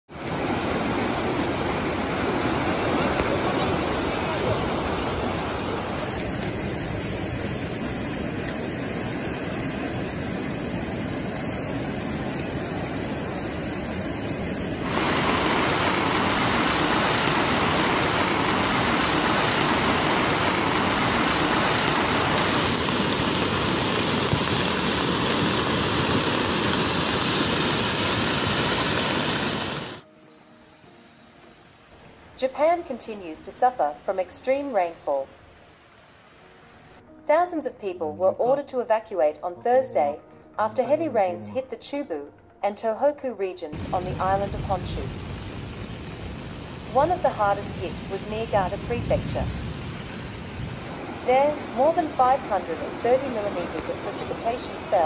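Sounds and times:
floodwater rushing: 0.1s - 30.1s, 43.8s - 55.0s.

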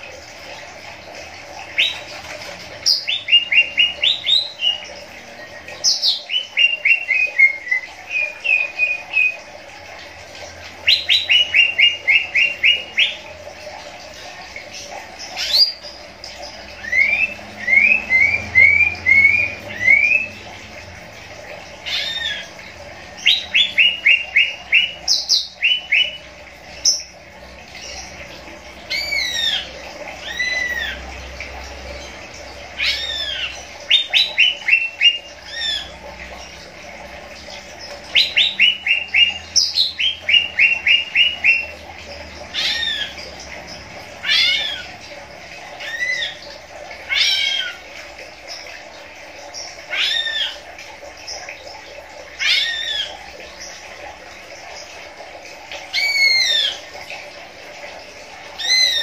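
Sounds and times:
bird chirping and whistling: 5.8s - 9.4s, 38.2s - 41.7s.

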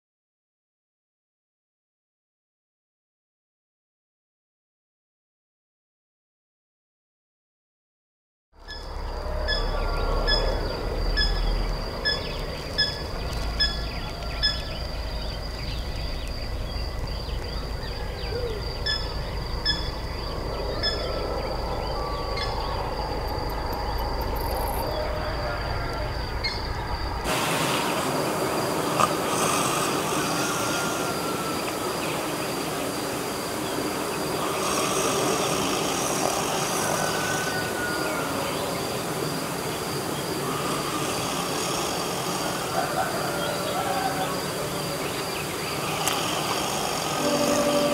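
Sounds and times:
high insect trill: 8.6s - 47.9s
insects chirping: 8.6s - 47.9s
even hiss: 26.9s - 47.9s.

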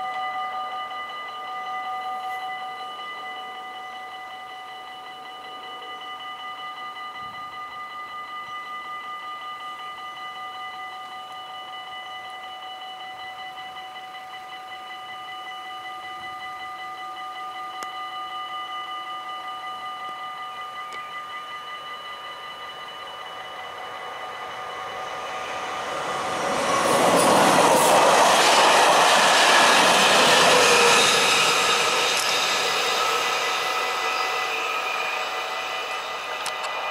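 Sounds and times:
level-crossing warning bell ringing: 0.0s - 36.9s.

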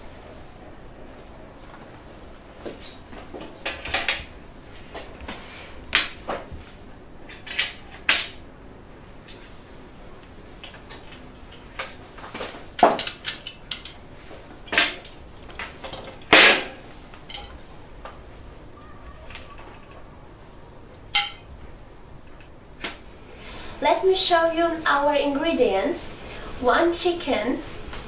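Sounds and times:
fork clinking on grate: 17.3s - 17.6s, 21.2s - 21.5s.

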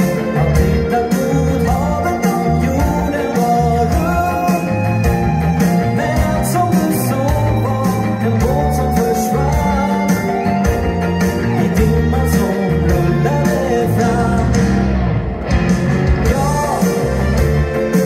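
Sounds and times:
person singing: 0.0s - 14.9s, 16.2s - 18.0s
bass: 0.0s - 18.0s
electric guitar lead: 0.0s - 18.0s
keyboard: 0.0s - 18.0s.

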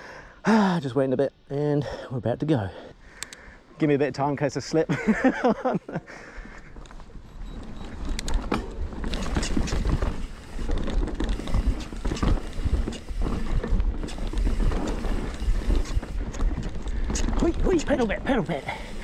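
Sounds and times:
bike rattling over bumps: 6.2s - 19.0s
bike tyres crunching on dirt: 6.3s - 19.0s.

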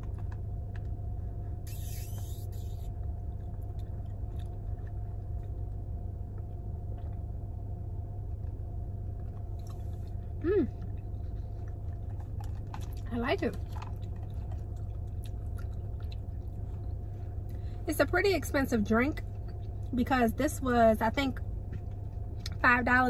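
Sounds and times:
steady low hum: 0.0s - 23.0s
brief hissing: 1.7s - 2.8s
person chewing: 1.7s - 7.2s, 13.6s - 17.1s.

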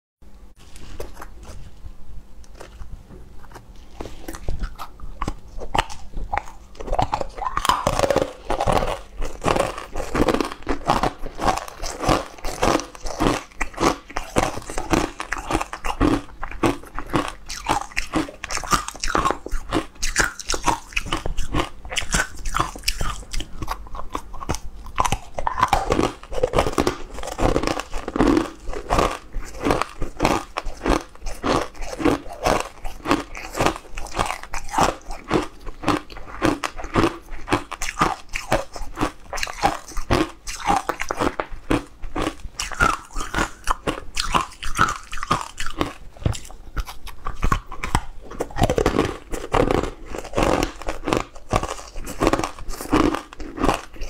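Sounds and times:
crunchy food chewing: 0.6s - 1.8s, 2.4s - 54.0s.

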